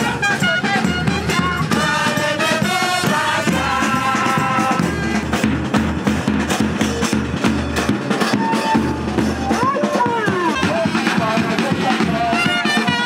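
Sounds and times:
hand percussion: 0.0s - 13.0s
group singing: 0.6s - 5.5s.

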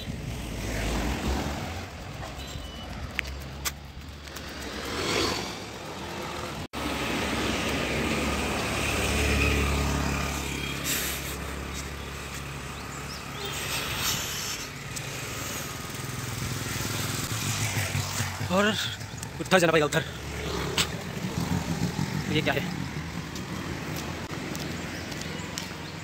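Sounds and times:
vehicles passing on road: 0.0s - 26.0s.

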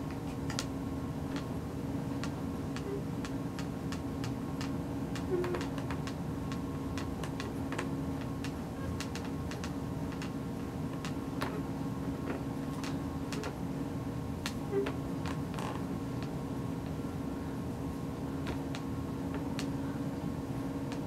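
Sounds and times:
faint sharp ticks and clicks: 2.2s - 11.2s.

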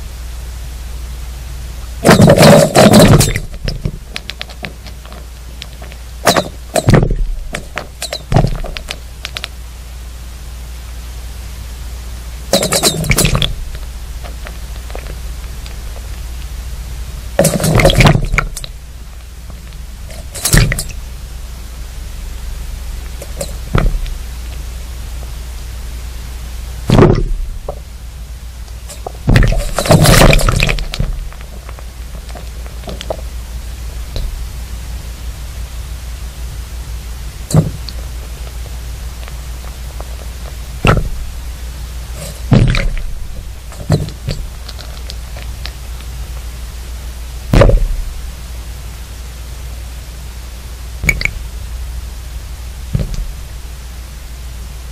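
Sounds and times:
steady low hum: 0.0s - 54.9s
dull thuds: 2.0s - 9.0s, 12.5s - 16.1s, 17.3s - 18.8s, 19.5s - 21.0s, 23.1s - 24.3s, 26.8s - 27.8s, 28.9s - 33.3s, 37.5s - 38.6s, 39.6s - 45.5s, 47.4s - 48.4s, 52.8s - 53.6s
sudden dull thumps: 6.3s - 9.0s, 17.4s - 18.7s, 23.3s - 24.2s, 26.9s - 27.8s, 29.0s - 31.8s, 40.8s - 41.4s, 42.4s - 44.6s, 47.5s - 48.3s, 52.9s - 53.4s.

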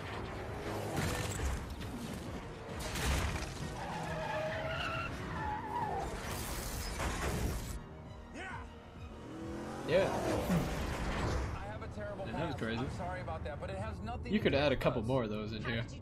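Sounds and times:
crashes of smashed barriers: 2.8s - 3.8s
tyres squealing: 3.6s - 7.2s.

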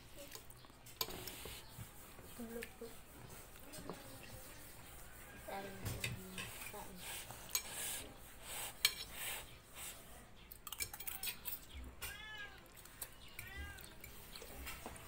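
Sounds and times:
cutlery clinking against plates: 5.8s - 6.8s, 7.5s - 7.8s, 8.8s - 9.2s, 10.5s - 12.2s, 12.8s - 15.0s
cat meowing: 12.0s - 14.0s.

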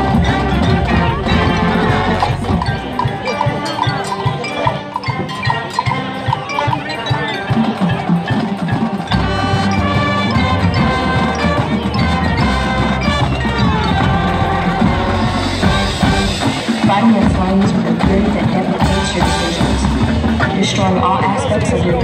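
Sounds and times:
sustained brass chords: 0.0s - 4.5s, 9.1s - 20.0s
marching band playing: 0.0s - 22.0s
pitched percussion hits: 0.0s - 22.0s.

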